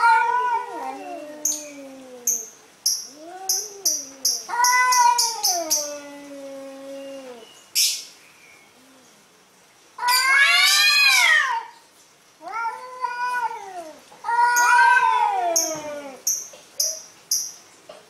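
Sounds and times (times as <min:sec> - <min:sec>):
cats yowling: 0:00.0 - 0:07.5, 0:10.0 - 0:11.8, 0:12.4 - 0:16.3.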